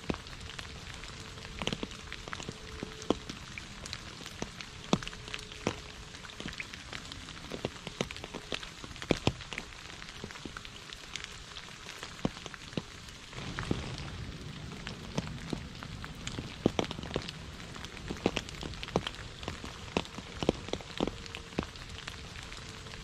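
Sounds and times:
rain dripping on puddle and leaves: 0:00.0 - 0:23.0
low background rush: 0:13.2 - 0:23.0.

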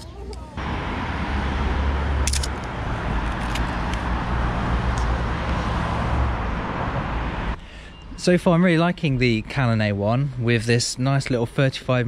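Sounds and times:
car passing: 0:00.6 - 0:08.2.

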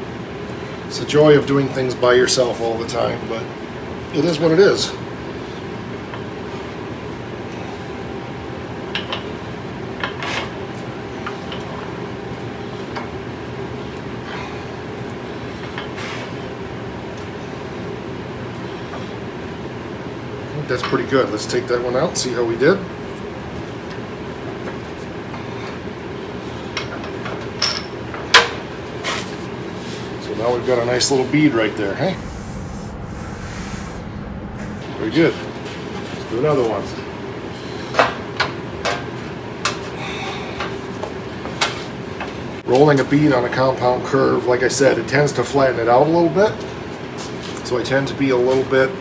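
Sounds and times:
low hum: 0:31.7 - 0:37.9.

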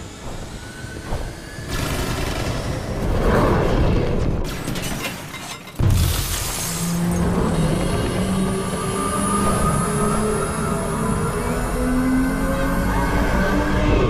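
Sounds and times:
glass shattering: 0:04.5 - 0:07.0.

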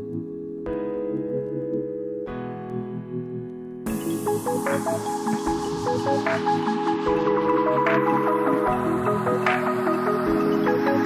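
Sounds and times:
electronic music: 0:00.0 - 0:11.0.

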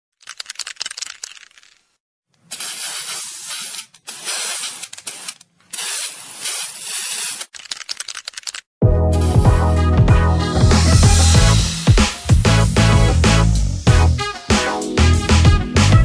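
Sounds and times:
spray can ball rattling: 0:00.2 - 0:01.9, 0:02.5 - 0:08.6
spray paint hissing: 0:02.5 - 0:07.5.

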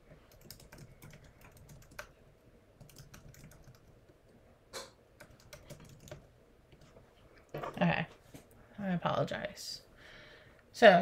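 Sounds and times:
typing on computer keyboard: 0:00.3 - 0:02.2, 0:02.8 - 0:04.0, 0:05.2 - 0:06.3.

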